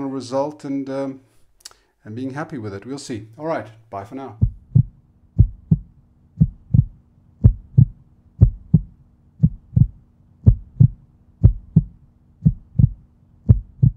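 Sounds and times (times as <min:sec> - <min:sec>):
faint low hum: 0:01.2 - 0:13.9
heartbeat thumps: 0:04.4 - 0:13.9.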